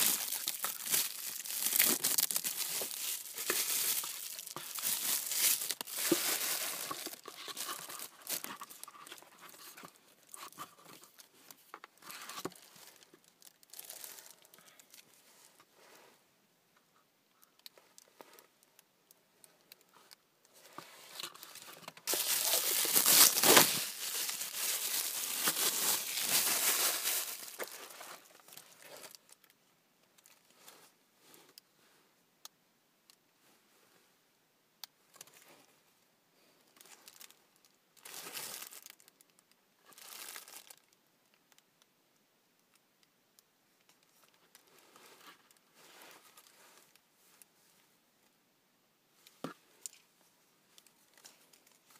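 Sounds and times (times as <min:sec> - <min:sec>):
packaging crinkling and rustling: 0:00.0 - 0:15.2, 0:20.7 - 0:29.5, 0:36.8 - 0:37.4, 0:38.0 - 0:41.0.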